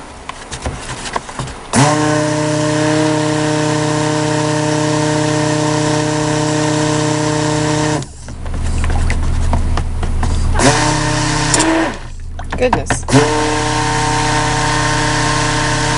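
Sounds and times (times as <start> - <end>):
immersion blender running: 1.8 - 8.1, 10.5 - 12.1, 13.0 - 15.9.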